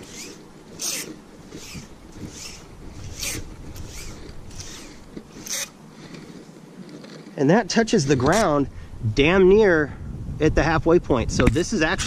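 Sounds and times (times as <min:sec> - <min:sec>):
cord zipping through hand: 0:00.0 - 0:08.6.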